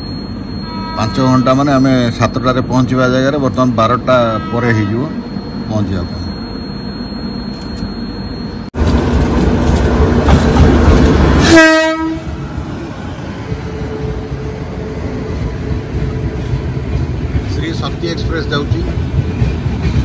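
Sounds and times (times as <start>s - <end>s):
locomotive rumbling: 0.0s - 20.0s
train horn blast: 0.6s - 1.7s, 4.2s - 5.2s, 11.4s - 12.4s
wheels clattering on rails: 8.8s - 11.5s, 15.4s - 20.0s.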